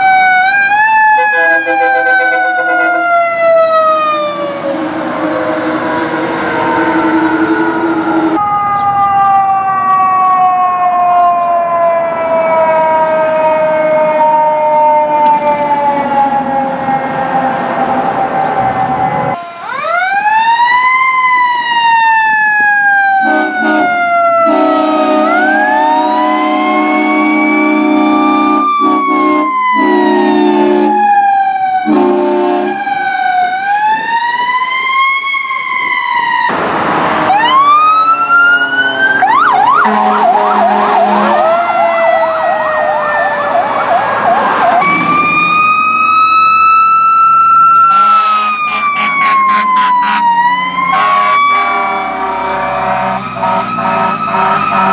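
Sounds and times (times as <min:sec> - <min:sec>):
fast siren yelp: 0:00.0 - 0:36.6, 0:37.2 - 0:54.9
fire truck sirens wailing: 0:00.0 - 0:54.9
air horn blasts: 0:01.1 - 0:03.2, 0:23.2 - 0:31.0, 0:31.8 - 0:32.9, 0:39.7 - 0:41.6, 0:47.9 - 0:54.9.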